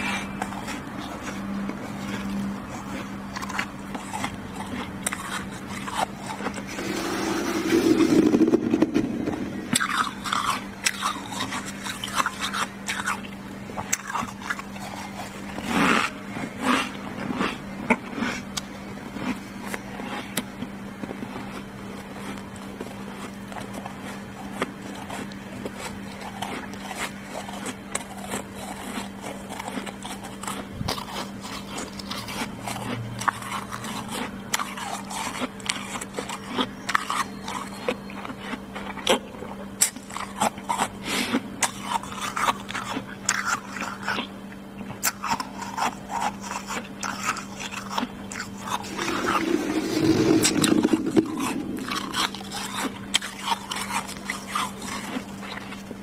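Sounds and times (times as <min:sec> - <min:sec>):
frost being chewed: 0:00.0 - 0:56.0
steady low hum: 0:00.0 - 0:56.0
hand scraping frost: 0:06.6 - 0:09.6, 0:48.8 - 0:52.6.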